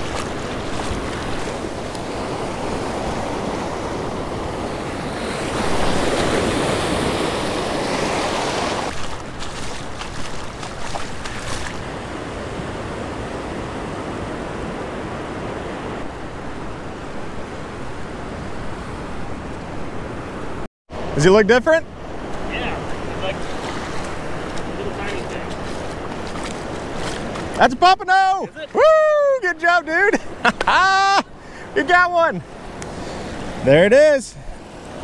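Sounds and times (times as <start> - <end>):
surf breaking on beach: 0.0 - 18.3, 22.1 - 35.0
wind buffeting microphone: 0.0 - 20.6.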